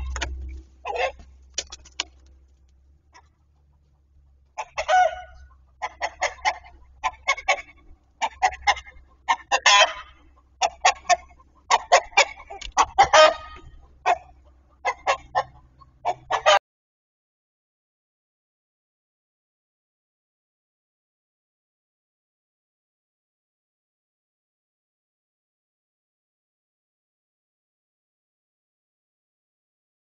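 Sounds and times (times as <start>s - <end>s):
chickens clucking and squawking: 0.0s - 16.6s.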